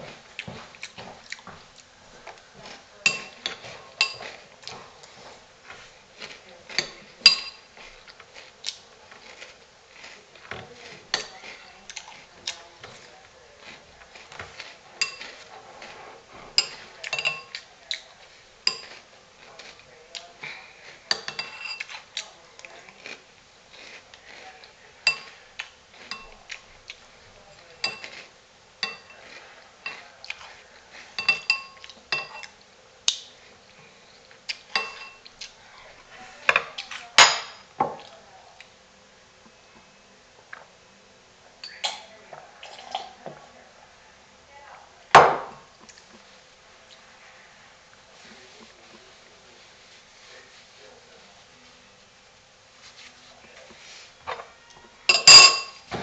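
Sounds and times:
spoon clinking against bowl: 3.0s - 4.3s, 15.0s - 15.3s, 16.6s - 17.6s, 21.1s - 21.9s, 27.8s - 28.2s, 28.8s - 29.2s, 31.2s - 32.5s, 34.8s - 35.2s, 55.1s - 55.8s.

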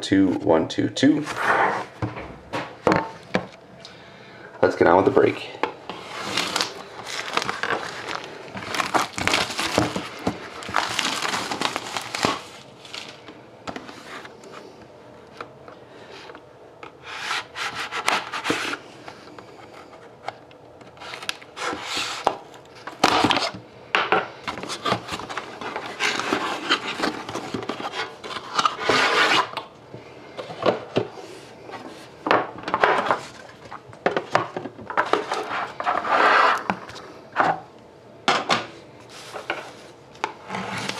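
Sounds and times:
cardboard scraping and rubbing: 1.2s - 2.0s, 5.9s - 13.1s, 17.0s - 18.8s, 24.6s - 29.5s, 40.4s - 40.9s.

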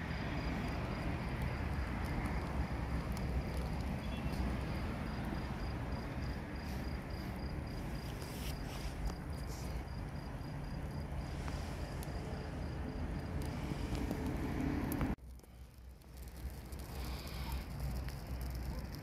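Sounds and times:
cricket chirping: 0.0s - 13.5s
fire crackling and popping: 0.0s - 19.0s.

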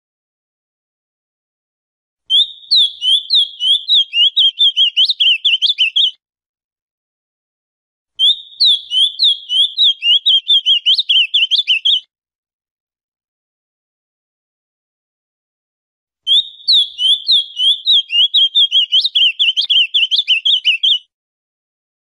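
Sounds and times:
bird singing: 2.3s - 6.1s, 8.2s - 12.0s, 16.3s - 21.1s.

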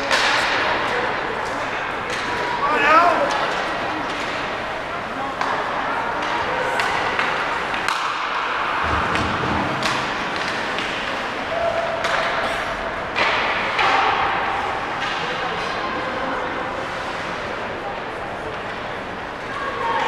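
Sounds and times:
puck and sticks striking boards: 0.0s - 1.0s, 2.0s - 2.6s, 3.2s - 4.6s, 5.4s - 16.0s
steady rink noise: 0.0s - 20.0s.

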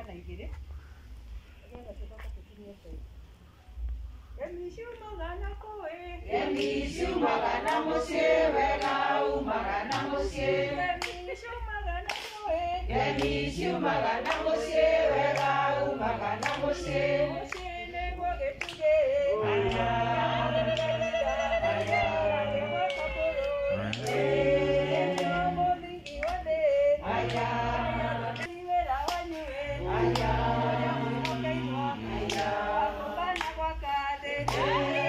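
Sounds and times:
group singing unaccompanied: 5.8s - 35.0s
hand-clapping: 6.5s - 11.4s, 12.0s - 15.6s, 16.2s - 17.8s, 18.5s - 19.0s, 19.6s - 32.6s, 33.2s - 35.0s.

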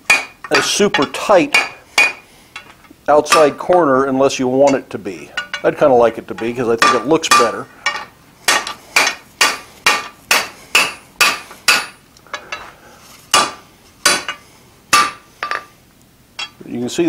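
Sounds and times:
hammer striking iron on anvil: 0.0s - 2.7s, 3.3s - 3.8s, 4.7s - 5.7s, 6.4s - 12.6s, 13.3s - 15.6s, 16.4s - 16.6s.

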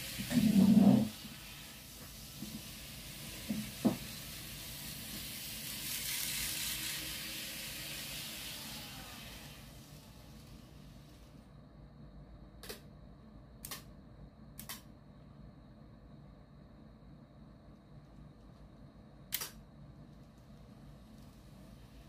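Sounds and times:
model train wheels hissing on rail: 0.0s - 11.5s, 20.8s - 22.0s.

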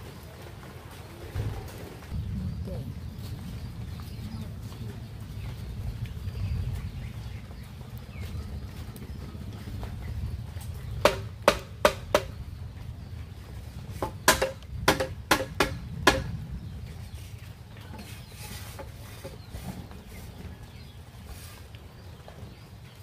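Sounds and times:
hammer striking bamboo: 11.0s - 12.3s, 14.0s - 16.3s.

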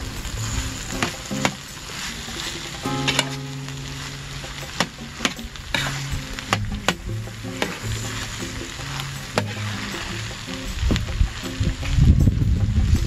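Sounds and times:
food sizzling in a skillet: 0.0s - 13.0s
metal spoon scraping a pan: 4.0s - 10.6s.

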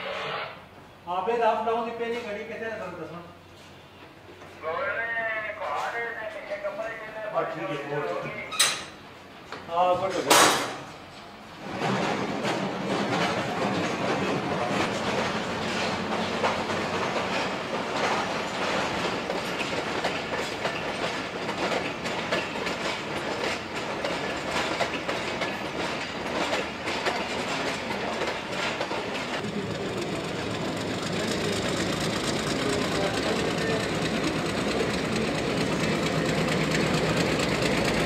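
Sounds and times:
diesel locomotive engine drone: 11.0s - 38.0s
train rumbling on rails: 11.0s - 38.0s
wheels clattering over rail joints: 11.5s - 38.0s.

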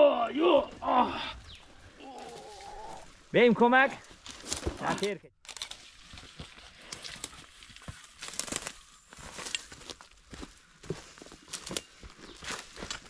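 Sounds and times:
footsteps crunching through dry leaves: 5.6s - 13.0s.

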